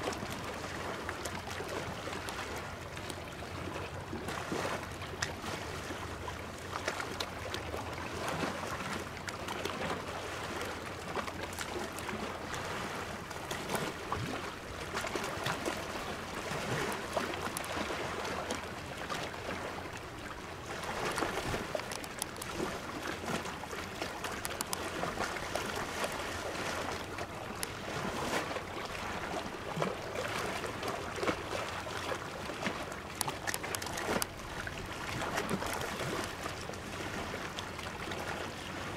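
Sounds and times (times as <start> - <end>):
small waves lapping: 0.0 - 38.9
small clicks: 21.7 - 22.6, 24.2 - 24.8, 33.2 - 34.3.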